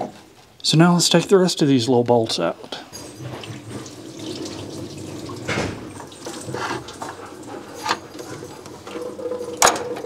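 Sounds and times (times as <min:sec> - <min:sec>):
metal pump knocking and clinking: 0:05.4 - 0:10.0.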